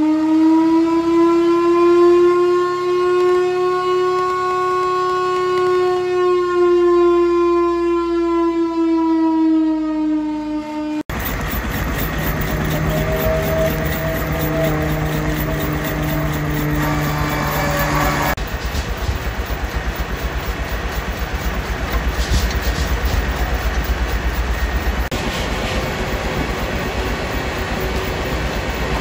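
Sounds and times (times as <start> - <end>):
fire truck siren wailing: 0.0 - 11.0, 11.6 - 18.4
noisy mechanical running: 11.1 - 29.0.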